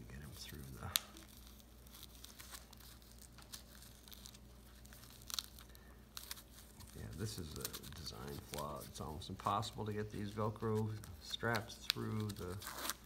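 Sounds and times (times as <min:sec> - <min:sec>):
velcro clicks and crackles: 0:00.5 - 0:09.6, 0:10.6 - 0:13.0.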